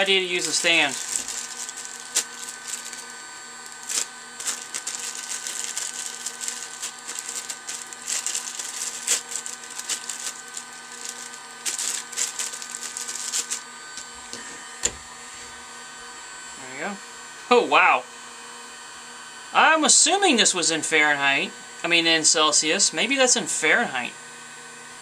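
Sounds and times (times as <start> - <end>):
plastic and wire parts crinkling: 0.0 - 15.0
hot air gun fan whining: 0.0 - 25.0.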